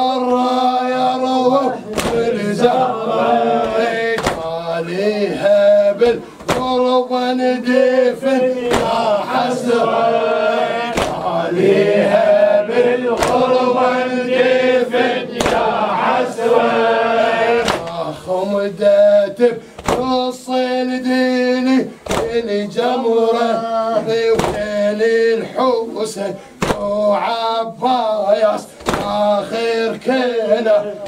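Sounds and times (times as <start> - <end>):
man chanting a lament: 0.0 - 31.0
hands striking chests in unison: 1.9 - 2.4, 3.6 - 4.6, 6.0 - 6.9, 8.6 - 9.2, 10.8 - 11.8, 13.1 - 13.7, 15.3 - 15.8, 17.5 - 18.0, 19.8 - 20.2, 22.0 - 22.4, 24.3 - 24.7, 26.6 - 27.0, 28.8 - 29.3.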